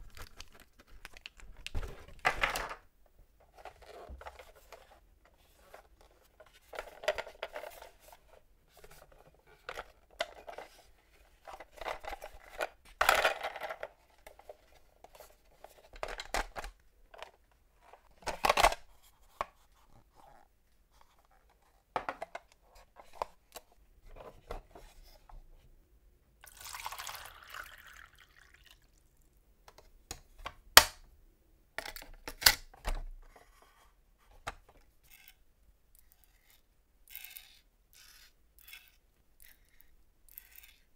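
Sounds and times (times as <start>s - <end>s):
sharp plastic snap: 30.8s - 31.0s
plastic toy parts clicking: 35.1s - 35.4s, 36.0s - 40.9s.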